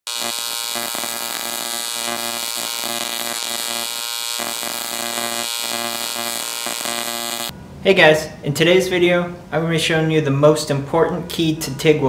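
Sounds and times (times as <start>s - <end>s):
welding arc buzzing: 0.0s - 7.5s.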